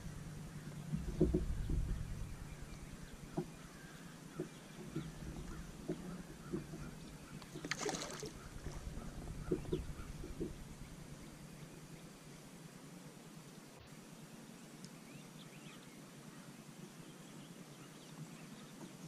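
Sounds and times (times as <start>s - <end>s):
light knocks and taps: 0.9s - 2.0s.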